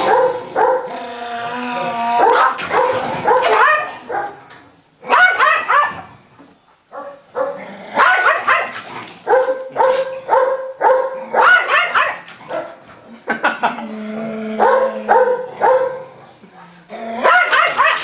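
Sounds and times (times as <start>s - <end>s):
small dog barking and yelping: 2.2s - 4.3s, 5.1s - 6.0s, 7.0s - 12.7s, 17.2s - 18.0s.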